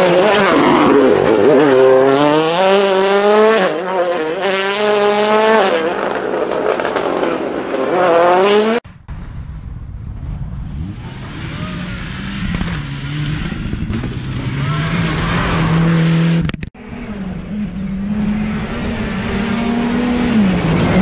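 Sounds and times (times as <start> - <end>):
rally car engines revving hard: 0.0 - 8.8, 10.8 - 21.0.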